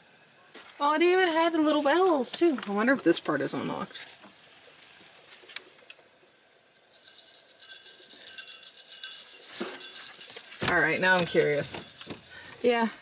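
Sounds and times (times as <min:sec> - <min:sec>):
jingle bells on door ringing: 0:06.9 - 0:13.0.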